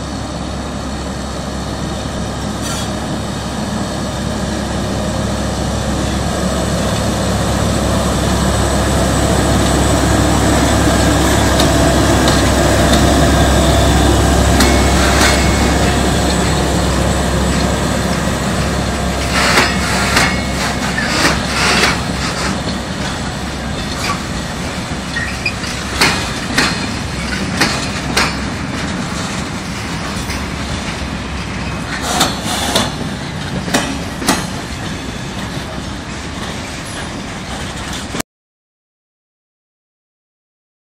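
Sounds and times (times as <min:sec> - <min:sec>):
diesel locomotive engine running: 0:00.0 - 0:38.2
train wheels knocking over rail joints: 0:10.5 - 0:38.2.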